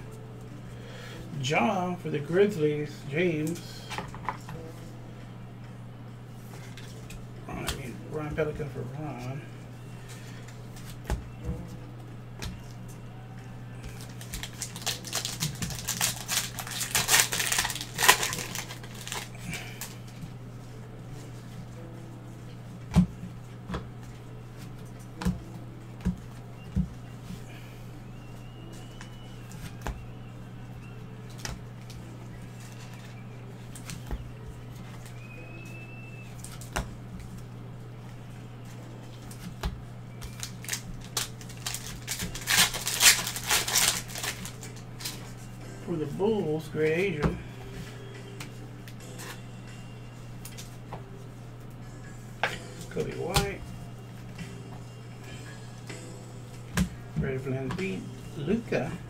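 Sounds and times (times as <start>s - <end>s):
steady low hum: 0.0s - 59.0s
plastic wrapper crinkling: 14.0s - 20.0s, 40.4s - 45.2s.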